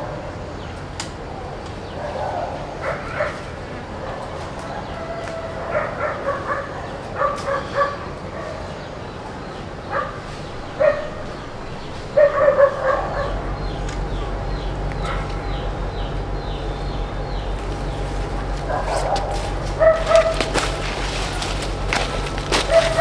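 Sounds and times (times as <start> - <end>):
dog barking and yipping: 4.8 - 8.7, 10.8 - 11.4, 12.1 - 13.4, 18.6 - 20.8, 22.6 - 23.0.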